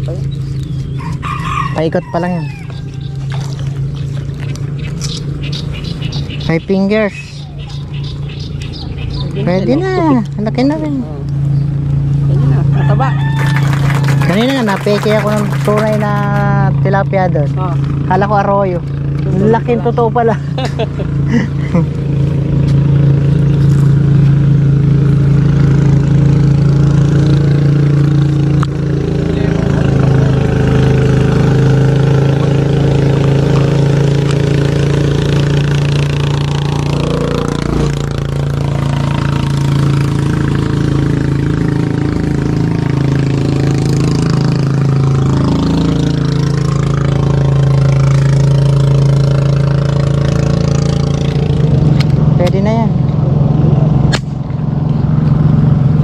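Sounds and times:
small engine running: 0.0 - 56.0.

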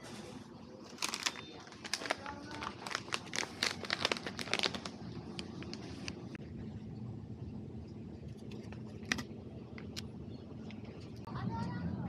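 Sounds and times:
crinkling handling noise: 0.0 - 6.4.

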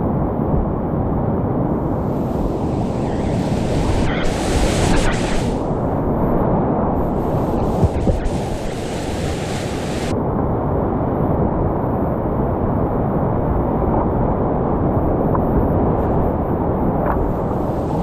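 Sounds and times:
river whitewater rushing: 2.0 - 6.2, 7.0 - 10.1.

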